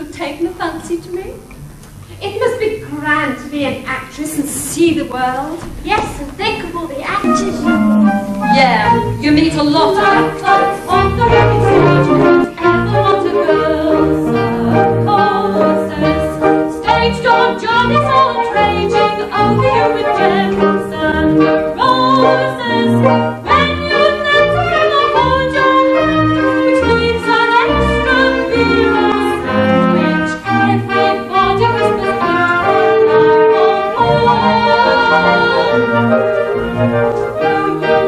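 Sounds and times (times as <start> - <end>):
pit orchestra playing: 7.1 - 38.0
woman singing: 7.2 - 26.0.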